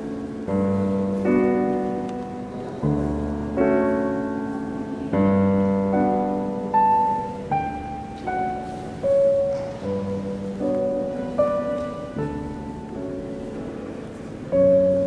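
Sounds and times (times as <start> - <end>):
slow solo piano melody: 0.0 - 15.0.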